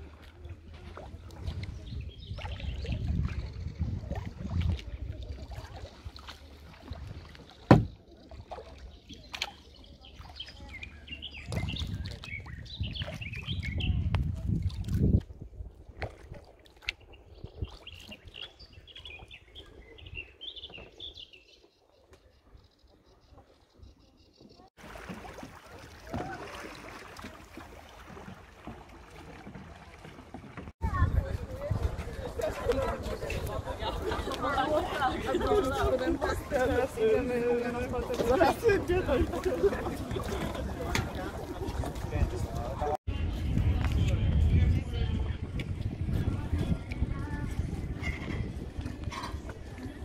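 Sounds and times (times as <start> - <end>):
kayak paddling on water: 0.0 - 50.0
wind on microphone: 1.0 - 6.2, 11.3 - 21.2, 30.8 - 36.8, 39.8 - 50.0
small birds chirping: 17.0 - 24.7.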